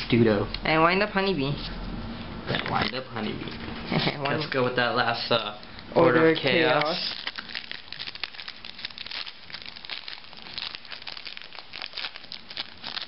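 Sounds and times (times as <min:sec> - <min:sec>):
foil wrapper crinkling: 0:06.8 - 0:13.0
foil wrapper tearing: 0:06.9 - 0:13.0.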